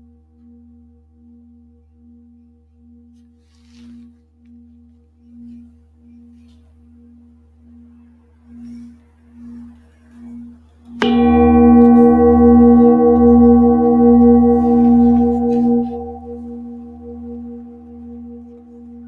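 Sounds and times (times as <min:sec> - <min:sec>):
singing bowl ringing: 0:08.5 - 0:19.0.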